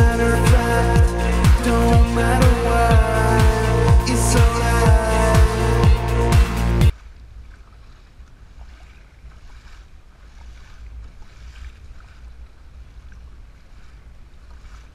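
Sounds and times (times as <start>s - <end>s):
paddle strokes splashing water: 6.4s - 14.9s.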